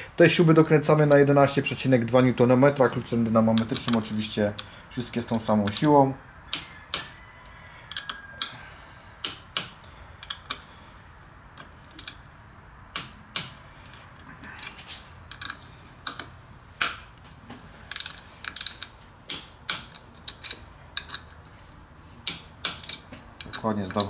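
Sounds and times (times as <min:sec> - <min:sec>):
torque wrench clicking: 0:17.9 - 0:24.0.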